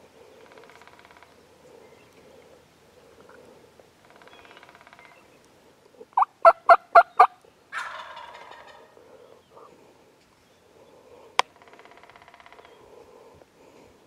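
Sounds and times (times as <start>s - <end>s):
turkey gobbling: 6.2s - 9.0s
rattling turkey call: 11.5s - 12.8s.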